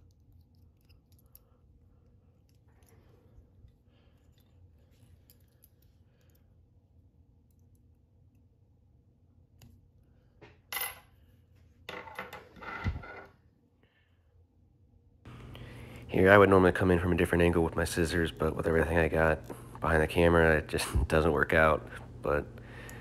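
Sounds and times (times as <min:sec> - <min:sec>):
tools clicking: 0:00.0 - 0:01.5.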